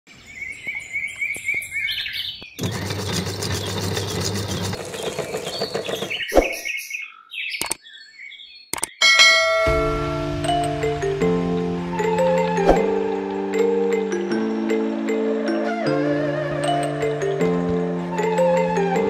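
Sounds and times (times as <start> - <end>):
small birds chirping: 0.1 - 9.0
meat grinder motor grinding: 2.6 - 6.2.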